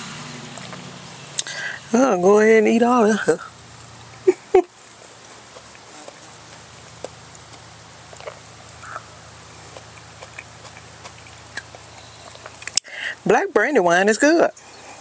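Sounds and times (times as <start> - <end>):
faint low hum: 0.0 - 15.0
mouth clicks and smacks: 1.4 - 1.8, 5.4 - 9.1, 9.7 - 13.2
person chewing: 3.4 - 13.2.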